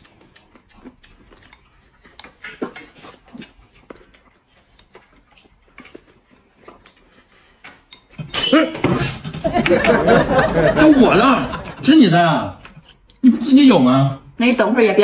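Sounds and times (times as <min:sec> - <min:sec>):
person chewing: 0:00.0 - 0:08.2, 0:12.6 - 0:13.6.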